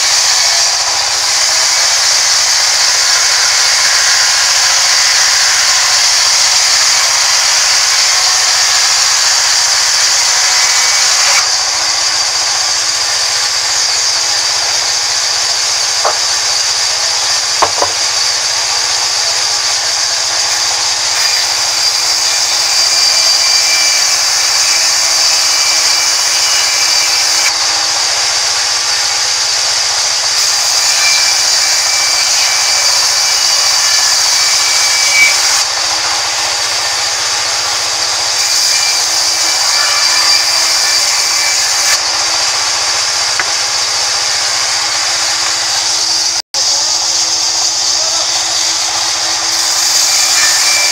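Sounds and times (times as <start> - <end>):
band saw cutting log: 0.0 - 50.9
short knocks: 17.6 - 18.0.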